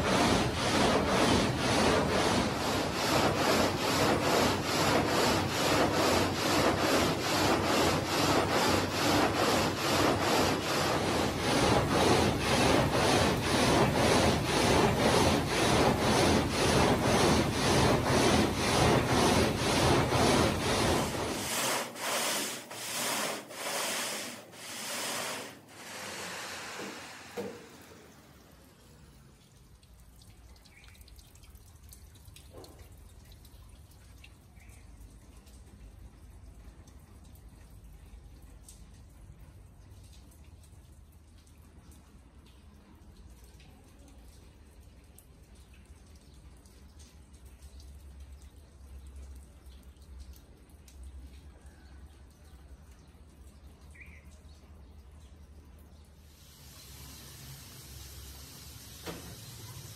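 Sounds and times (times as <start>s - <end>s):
gang saw rasping through stone: 0.0s - 28.1s
water trickling and dripping: 24.4s - 59.9s.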